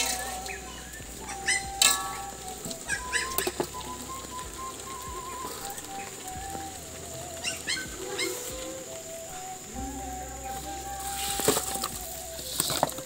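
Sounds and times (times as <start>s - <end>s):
bird chirps: 0.0s - 13.0s
soft background music: 0.0s - 13.0s.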